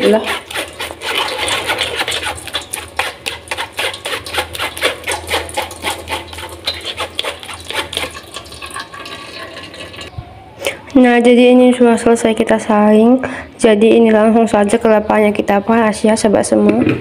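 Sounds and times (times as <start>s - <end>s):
metal spoon scraping in sieve: 0.0s - 10.1s.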